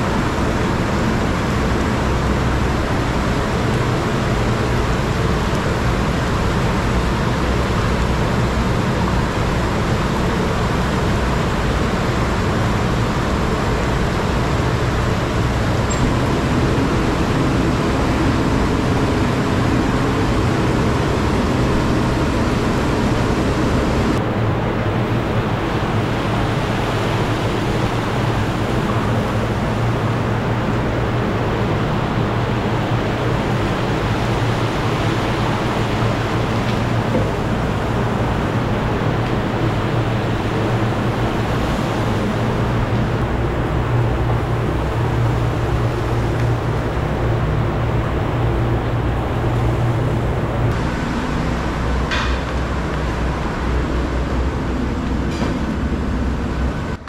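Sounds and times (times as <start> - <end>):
gas burner rushing: 15.0 - 24.2.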